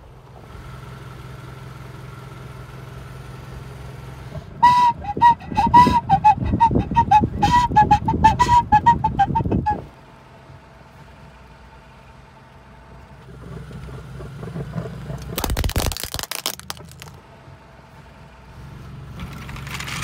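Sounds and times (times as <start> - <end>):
car engine running low: 0.0 - 20.0
tyre crushing plastic whistle: 4.6 - 9.8, 15.2 - 17.2
toy whistle notes: 4.6 - 9.9.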